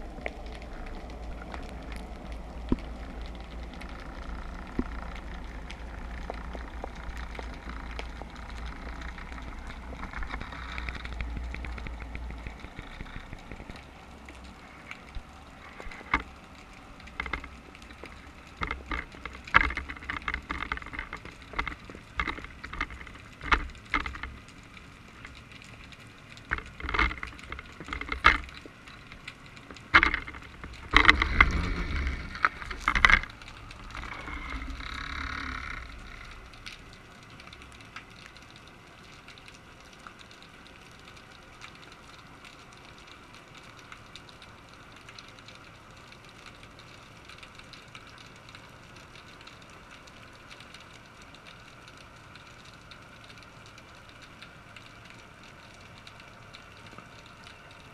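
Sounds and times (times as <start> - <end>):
low underwater noise: 0.0 - 57.9
sharp clicks and knocks: 17.0 - 24.6, 25.2 - 36.8.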